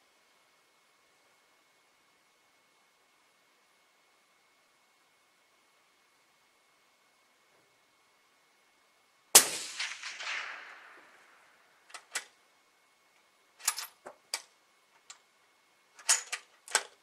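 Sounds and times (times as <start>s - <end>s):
suppressed rifle shot: 9.4s - 11.7s.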